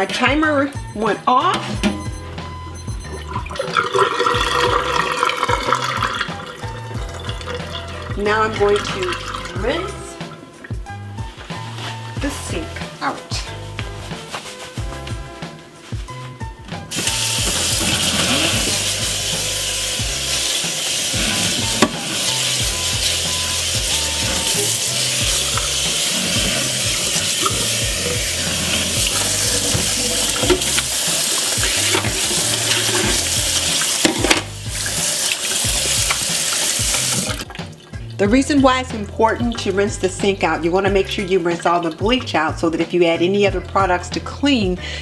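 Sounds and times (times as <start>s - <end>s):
water spraying into steel sink: 3.1s - 11.0s, 16.9s - 37.7s.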